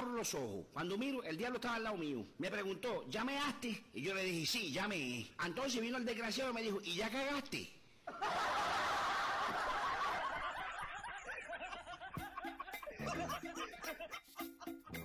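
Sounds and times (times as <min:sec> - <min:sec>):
crowd laughing: 0:08.1 - 0:15.0
light percussive music: 0:11.4 - 0:15.0.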